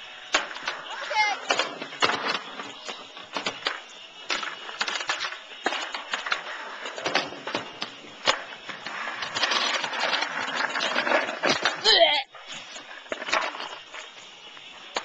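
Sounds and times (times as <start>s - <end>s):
skateboard clacking: 0.0s - 15.0s
skateboard wheels rolling on concrete: 0.0s - 15.0s.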